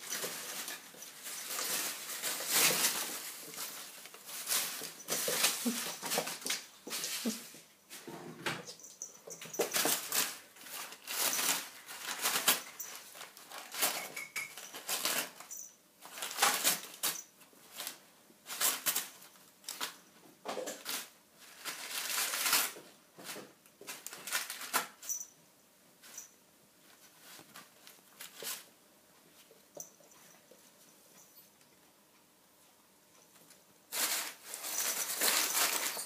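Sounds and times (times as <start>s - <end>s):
paper crinkling and rustling: 0.0s - 7.6s, 9.5s - 25.1s, 26.8s - 28.7s, 33.9s - 36.0s.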